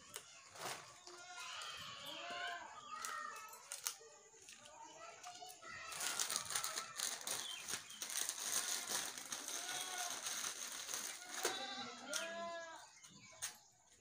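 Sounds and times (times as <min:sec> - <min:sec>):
plastic packet crinkling: 0:02.9 - 0:04.7, 0:05.3 - 0:12.4
goat bleating: 0:11.2 - 0:12.9.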